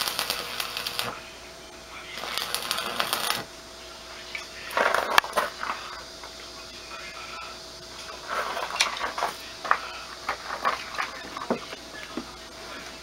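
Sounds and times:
welding arc crackling: 0.0s - 1.2s, 2.0s - 3.5s.

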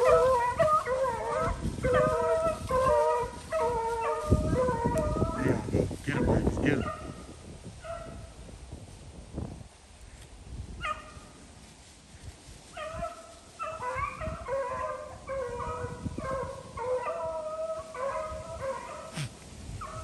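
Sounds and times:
hounds baying: 0.0s - 5.7s, 10.8s - 11.3s, 12.7s - 20.0s.

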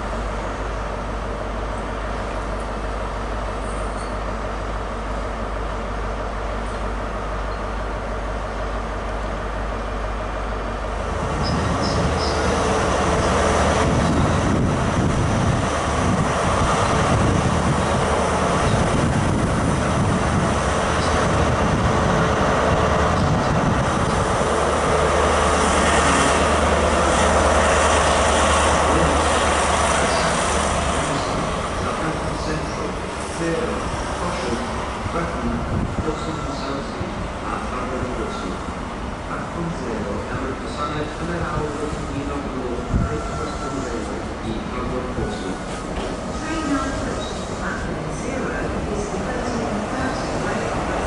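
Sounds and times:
wheels rumbling on rail: 0.0s - 51.0s
diesel engine running loud: 9.6s - 33.1s.

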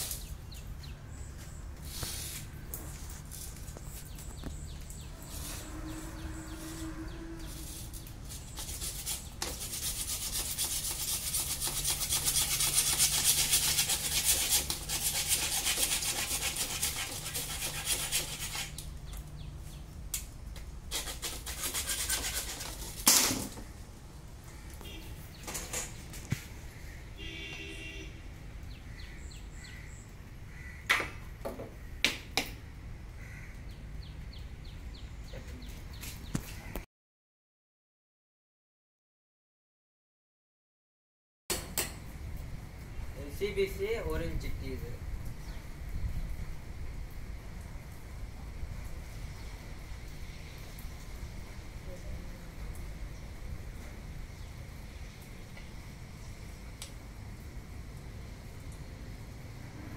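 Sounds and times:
hacksaw sawing plastic pipe: 8.4s - 18.8s, 20.9s - 23.5s
sharp crack: 23.0s - 23.6s.

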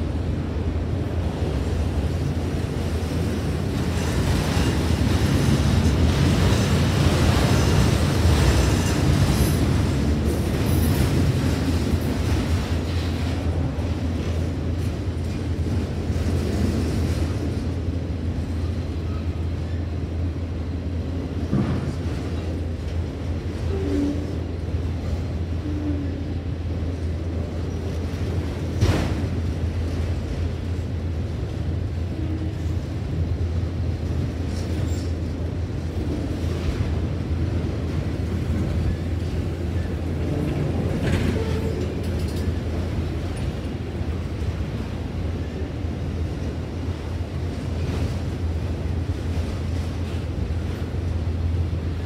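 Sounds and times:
train wheels rumbling on rails: 0.0s - 52.0s.

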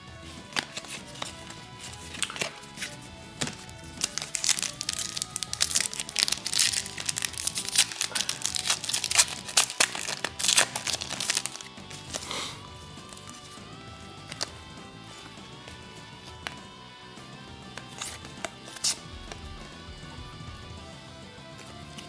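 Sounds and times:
quiet background music: 0.0s - 22.0s
foil wrapper tearing and crinkling: 3.6s - 12.3s.

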